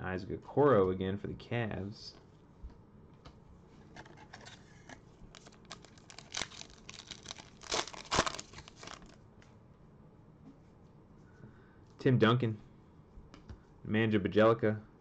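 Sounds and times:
foil wrapper crinkling and tearing: 0:05.3 - 0:09.2
foil ripping: 0:05.4 - 0:09.2.

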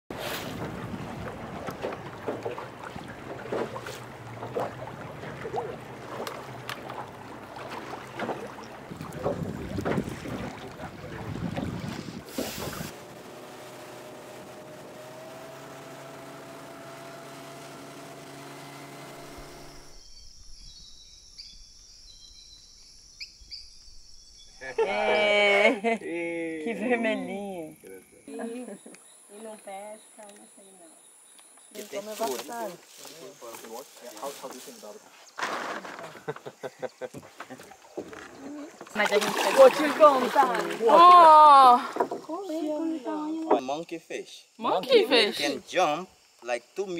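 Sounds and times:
water splashing against hull: 0:00.1 - 0:20.0, 0:35.3 - 0:42.8
boat motor running: 0:00.5 - 0:20.2
bird chirps: 0:19.6 - 0:24.8.

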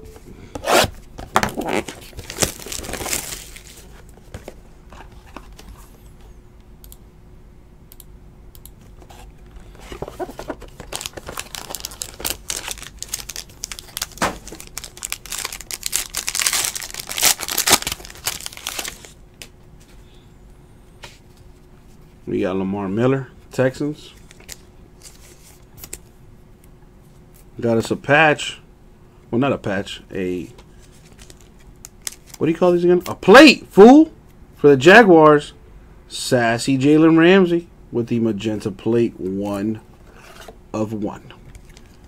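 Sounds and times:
packaging tearing and crinkling: 0:01.4 - 0:03.9, 0:10.2 - 0:19.2, 0:31.0 - 0:32.4.

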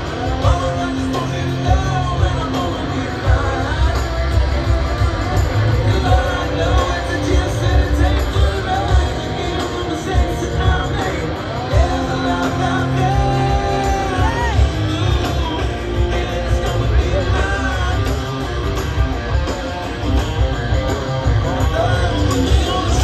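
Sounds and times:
live rock band playing: 0:00.0 - 0:23.0.

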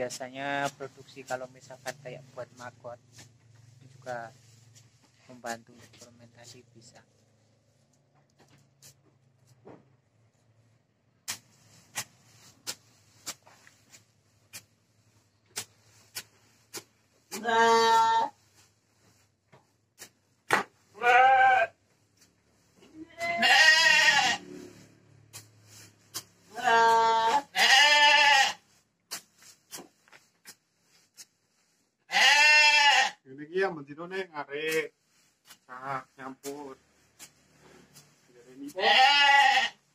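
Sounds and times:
stick tossing chopped forage: 0:00.1 - 0:04.0, 0:11.2 - 0:18.2, 0:19.6 - 0:20.9, 0:24.5 - 0:27.5, 0:29.0 - 0:31.7, 0:34.6 - 0:38.8
sheep bleating: 0:17.4 - 0:18.4, 0:21.0 - 0:21.8, 0:23.0 - 0:24.4, 0:26.5 - 0:28.6, 0:32.1 - 0:33.2, 0:38.7 - 0:39.8.

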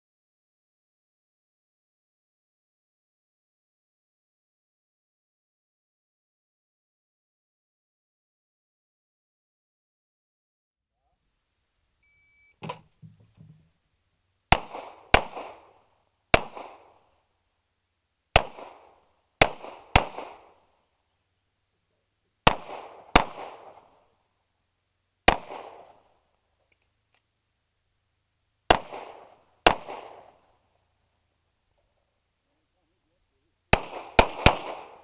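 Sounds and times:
shot timer beep: 0:12.0 - 0:12.7
pistol shots with echo: 0:14.5 - 0:17.0, 0:18.4 - 0:20.6, 0:22.4 - 0:24.0, 0:25.3 - 0:26.1, 0:28.7 - 0:30.5, 0:33.7 - 0:35.0.

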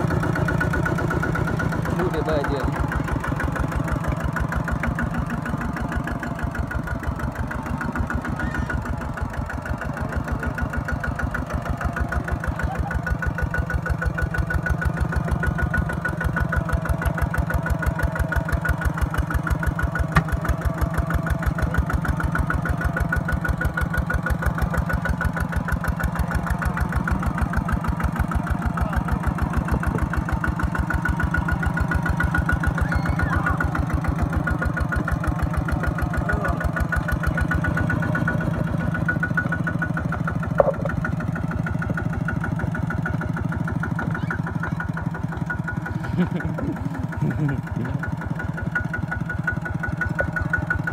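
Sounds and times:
diesel tractor engine chugging: 0:00.0 - 0:50.9
sharp engine knock: 0:14.3 - 0:50.9.

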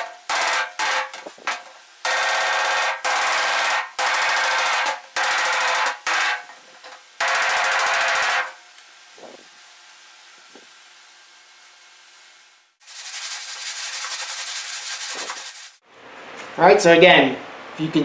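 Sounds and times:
hammer striking steel panel: 0:00.0 - 0:06.5, 0:07.2 - 0:08.6.

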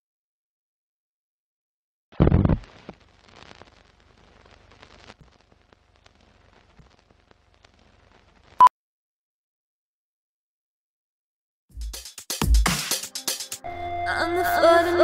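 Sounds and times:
film crackle and pops: 0:02.2 - 0:08.7.

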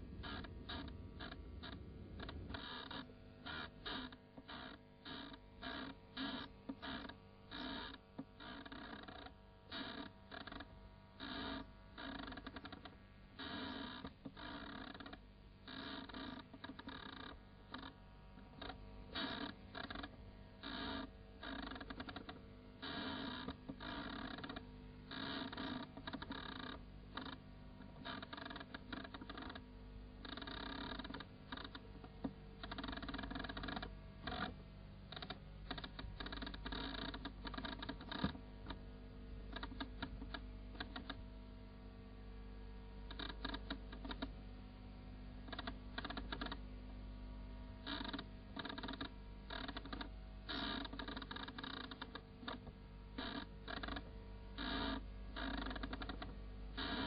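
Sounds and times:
steady hum: 0:00.0 - 0:09.8.

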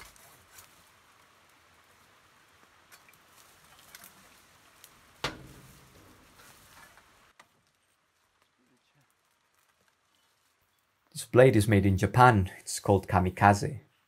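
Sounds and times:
branches rustling: 0:00.0 - 0:11.2.

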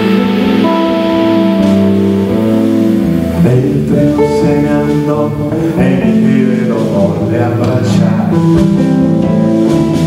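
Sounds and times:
saxophone: 0:00.0 - 0:06.9
bass guitar: 0:00.0 - 0:10.0
drum kit: 0:00.0 - 0:10.0
electric guitars: 0:00.0 - 0:10.0.

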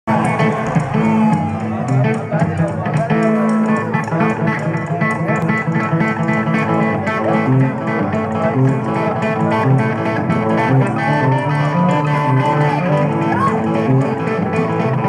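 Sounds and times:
drum beat: 0:00.1 - 0:03.3
electric guitar: 0:00.1 - 0:15.0.

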